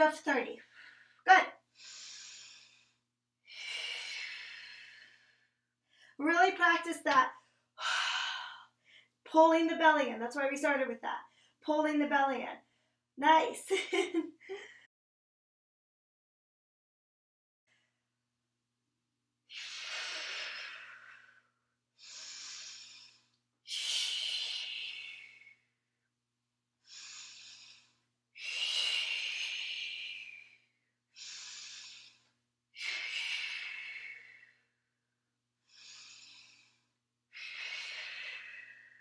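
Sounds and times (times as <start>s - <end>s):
woman breathing heavily: 0.6s - 6.2s, 7.4s - 9.2s, 26.8s - 34.8s, 35.6s - 39.0s.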